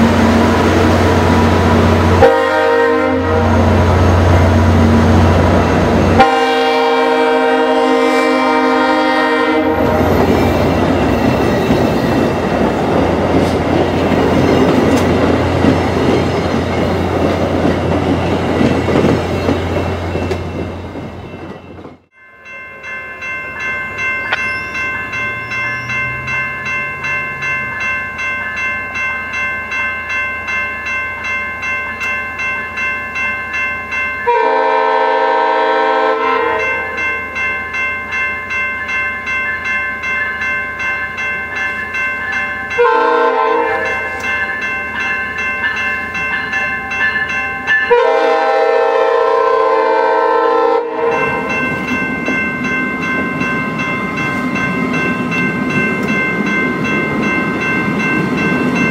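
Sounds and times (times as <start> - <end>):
train rumble: 0.0 - 22.1
level-crossing bells ringing: 0.0 - 50.0, 51.0 - 58.9
train horn: 1.4 - 4.8, 6.1 - 10.2, 34.3 - 36.9, 42.8 - 44.1, 47.9 - 51.4.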